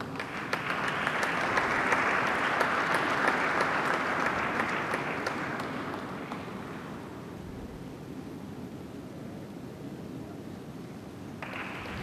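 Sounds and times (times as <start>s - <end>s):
audience applauding: 0.0s - 7.0s, 11.4s - 12.0s.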